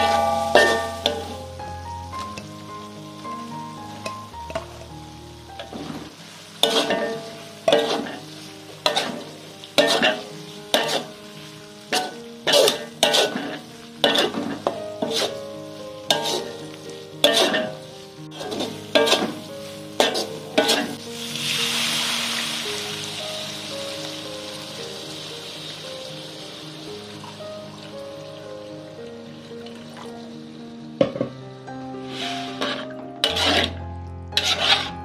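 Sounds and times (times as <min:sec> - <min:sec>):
water hissing in hot wok: 0:00.0 - 0:31.1, 0:31.9 - 0:35.0
food sizzling: 0:00.0 - 0:35.0
metal turner scraping wok: 0:05.6 - 0:11.3, 0:11.9 - 0:16.6, 0:17.2 - 0:21.0, 0:32.0 - 0:33.8, 0:34.4 - 0:35.0.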